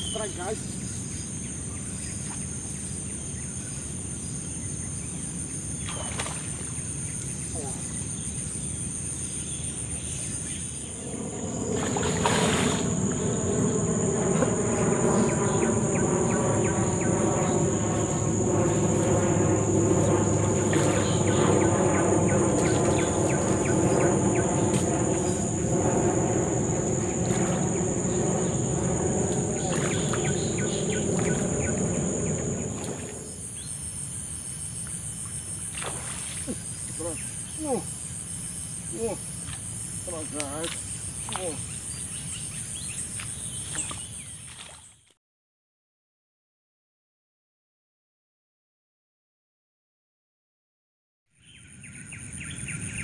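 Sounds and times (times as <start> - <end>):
insects calling: 0.0 - 45.0, 51.4 - 53.0
drone of held tones: 10.8 - 33.5.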